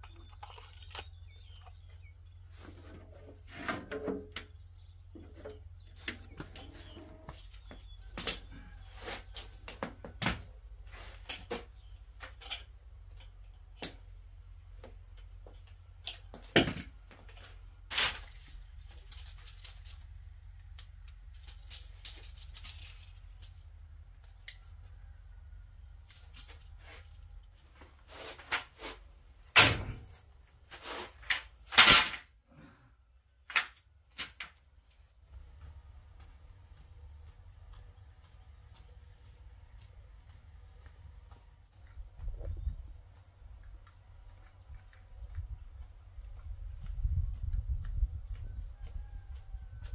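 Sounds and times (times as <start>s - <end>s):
loud metal clanks: 29.6s - 30.4s
steel pipes clicking and knocking: 33.4s - 35.0s.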